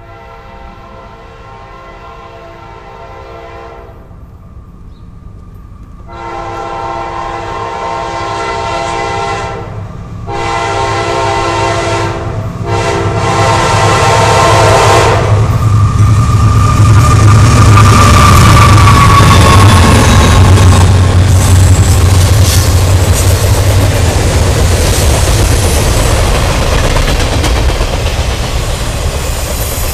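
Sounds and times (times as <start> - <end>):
train horn blasts: 0.0 - 4.1, 6.1 - 15.6
locomotive rumble passing: 0.0 - 29.9.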